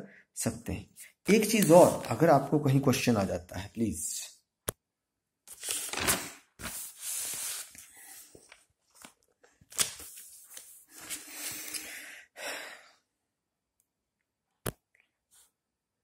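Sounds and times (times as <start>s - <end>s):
paper pages rustling: 1.4s - 2.3s, 5.5s - 11.8s.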